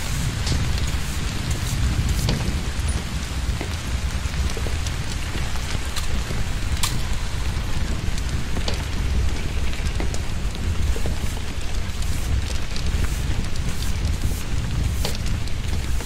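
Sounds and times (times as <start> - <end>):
low rumble: 0.0 - 16.0
torrential rain: 0.0 - 16.0.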